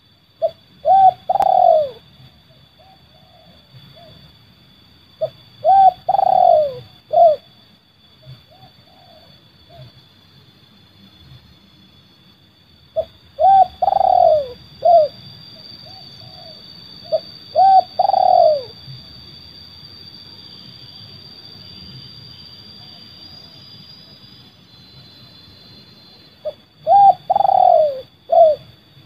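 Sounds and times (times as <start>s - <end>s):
dove cooing: 0.4s - 4.2s, 5.2s - 7.5s, 8.2s - 9.9s, 13.0s - 15.2s, 15.8s - 18.8s, 26.4s - 28.7s.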